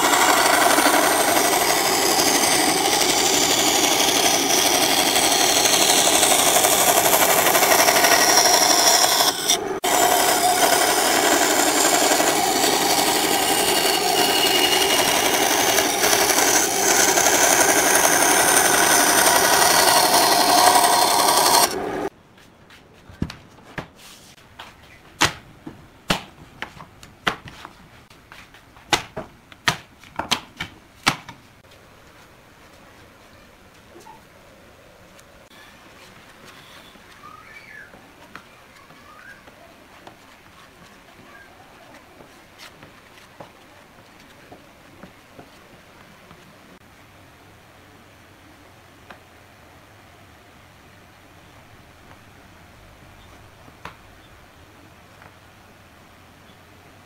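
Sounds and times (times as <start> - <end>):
band saw cutting wood: 0.0 - 22.1.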